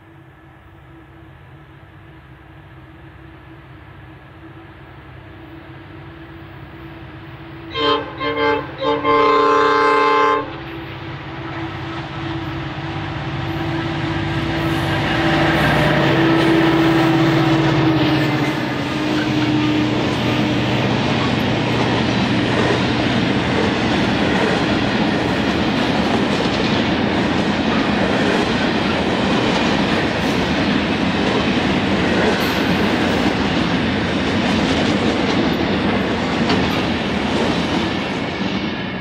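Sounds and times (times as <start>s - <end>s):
diesel locomotive engine: 0.0s - 39.0s
train wheels passing: 0.0s - 39.0s
locomotive horn: 7.6s - 21.4s.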